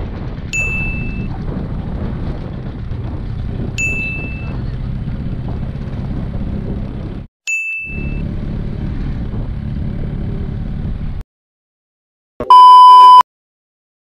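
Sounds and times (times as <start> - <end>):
wind and road noise: 0.0 - 7.3, 7.9 - 11.2
short high ding: 0.6 - 1.2, 3.8 - 4.5, 7.5 - 8.2.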